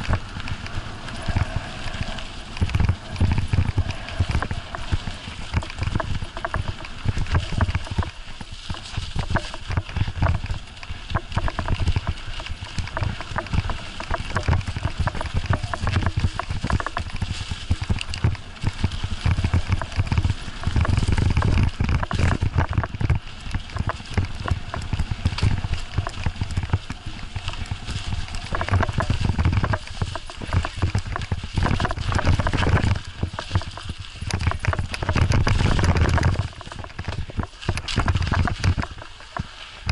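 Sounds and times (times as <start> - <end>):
bicycle knocking and rattling: 0.0 - 39.9
wind rumble on microphone: 0.0 - 39.9.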